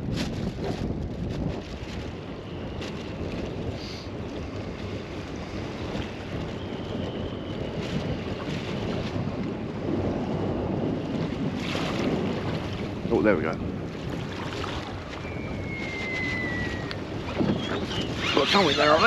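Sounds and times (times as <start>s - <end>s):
wind buffeting microphone: 0.0s - 19.0s
small waves splashing: 7.6s - 19.0s.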